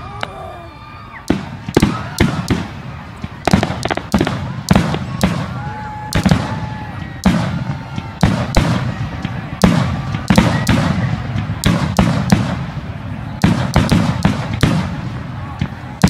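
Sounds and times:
fireworks bursting with echo: 1.2 - 16.0.

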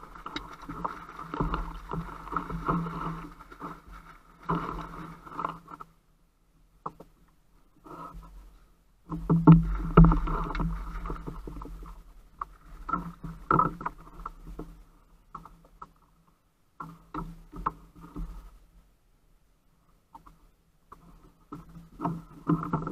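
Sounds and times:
water splashing: 0.0 - 5.7.

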